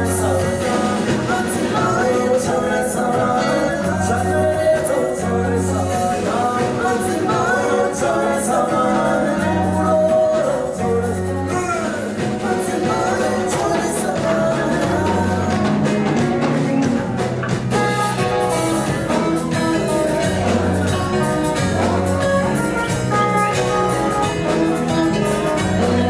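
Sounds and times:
women singing: 0.0s - 15.9s
drums: 0.0s - 26.0s
electric bass guitar: 0.0s - 26.0s.

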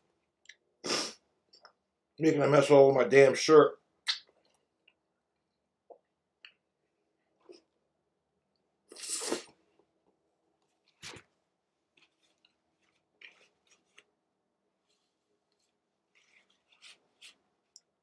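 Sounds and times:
paper napkin rustling: 14.8s - 17.7s.

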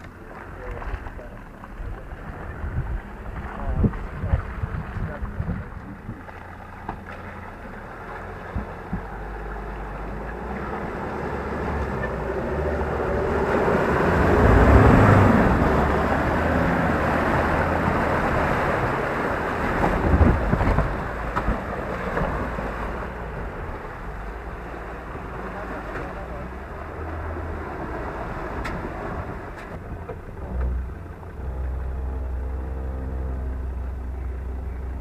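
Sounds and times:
truck engine working hard: 0.0s - 35.0s
tyres splashing mud and water: 0.0s - 35.0s.

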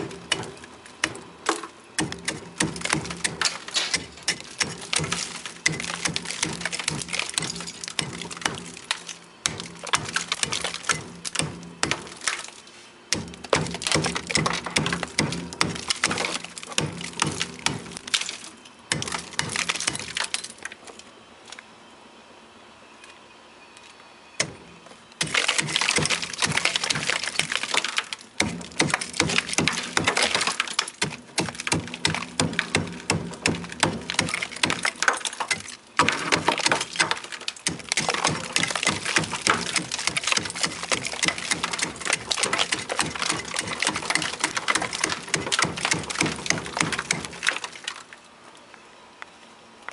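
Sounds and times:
chisel chipping ice: 0.0s - 20.6s, 25.2s - 48.0s
ice chips pattering: 25.2s - 32.7s, 34.1s - 48.3s.

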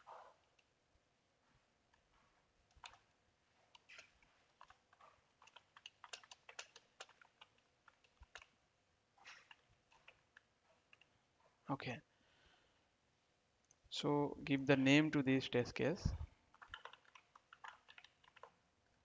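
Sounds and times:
faint keyboard typing: 1.9s - 3.1s, 3.7s - 8.6s, 9.2s - 11.2s, 16.1s - 19.0s.

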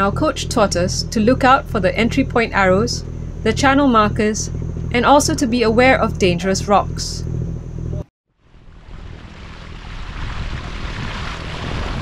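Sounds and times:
low boat engine hum: 0.0s - 12.0s
water rushing along boat hull: 8.6s - 12.0s
wind on microphone: 8.6s - 12.0s.

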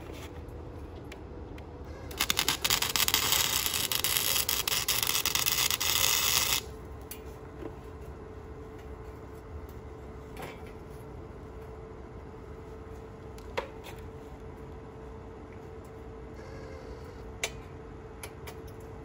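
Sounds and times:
faint steady hum: 0.0s - 19.0s
welder crackling hiss: 2.1s - 6.7s.

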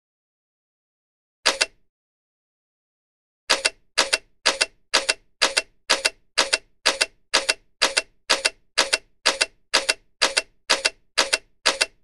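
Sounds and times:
camera shutter double click: 1.5s - 1.8s.

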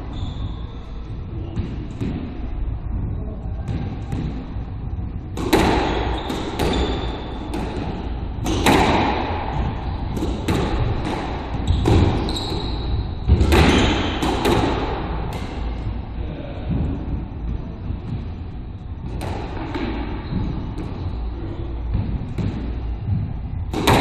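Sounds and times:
squash ball hits echoing: 1.4s - 2.5s, 3.5s - 15.9s, 19.0s - 24.0s.

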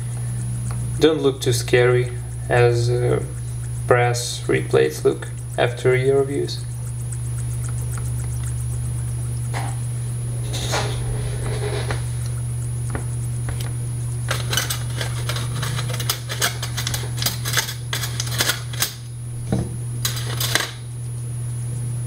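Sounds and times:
low hum: 0.0s - 22.0s
small metal parts clinking: 14.3s - 19.0s, 20.0s - 20.8s.

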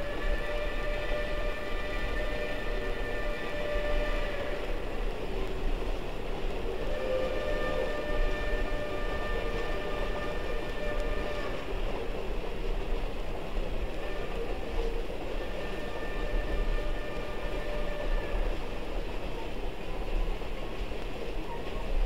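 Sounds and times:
steam locomotive whistle blasts: 0.0s - 5.4s, 6.6s - 12.2s, 13.9s - 18.6s
moving train noise: 0.0s - 22.0s.

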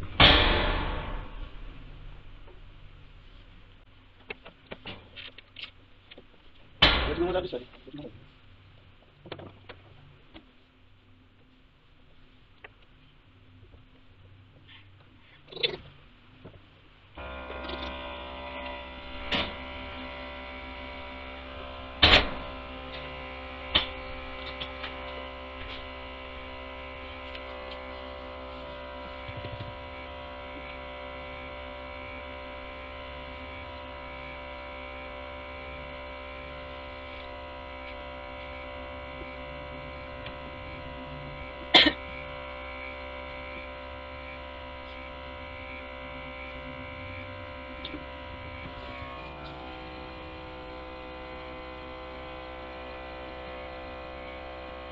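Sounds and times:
milking machine motor hum: 17.2s - 54.9s.

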